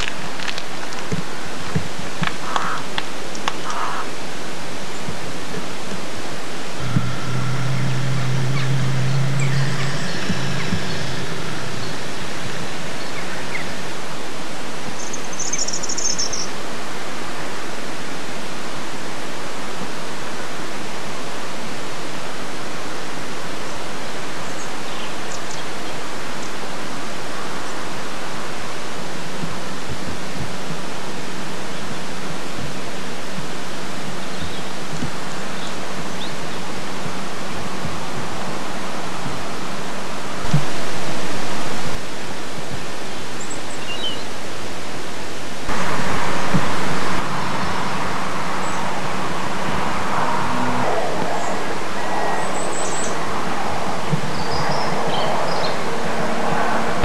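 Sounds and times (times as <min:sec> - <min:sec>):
high chirp: 0:06.8 - 0:13.8
steady hiss: 0:38.5 - 0:50.4.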